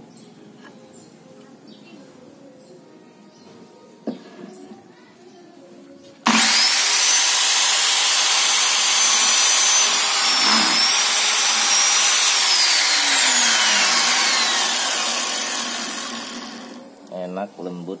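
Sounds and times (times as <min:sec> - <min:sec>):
electric miter saw whine: 0:06.3 - 0:16.8
saw blade cutting timber: 0:06.3 - 0:16.8.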